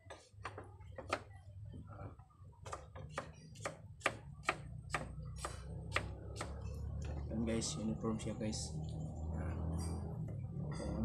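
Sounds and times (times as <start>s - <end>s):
knife chopping on wooden board: 2.6s - 6.6s.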